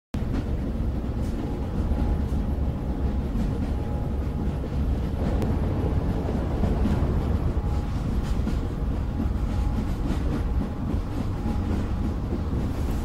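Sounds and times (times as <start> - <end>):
vehicle rumble: 2.6 - 11.2.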